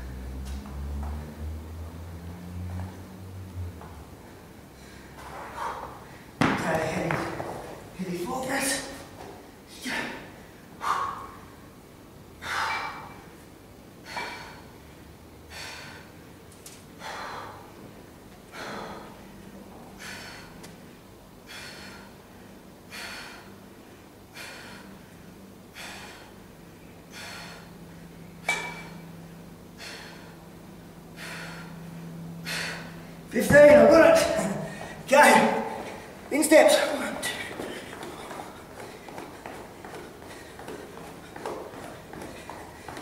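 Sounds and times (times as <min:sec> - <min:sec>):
man exhaling forcefully: 0:31.2 - 0:33.1.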